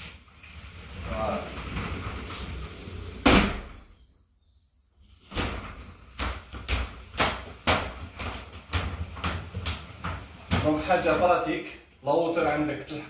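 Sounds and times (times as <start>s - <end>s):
shower door banging shut: 3.0s - 3.8s, 5.3s - 10.9s.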